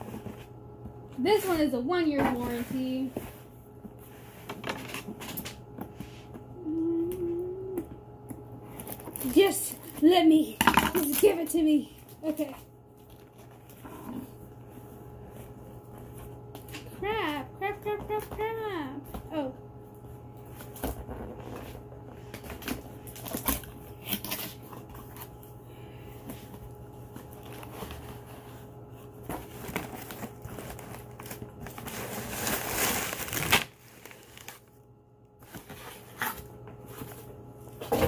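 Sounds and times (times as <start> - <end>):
steady low hum: 0.0 - 38.0
packaging crinkling: 8.7 - 10.1, 26.8 - 34.8.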